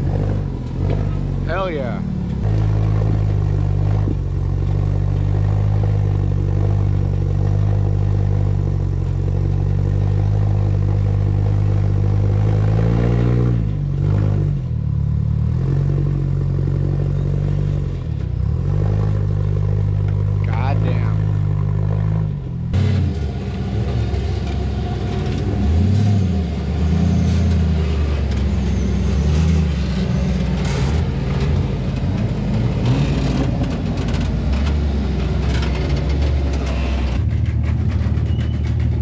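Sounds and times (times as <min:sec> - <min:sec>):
buggy engine running under load: 0:00.0 - 0:39.0.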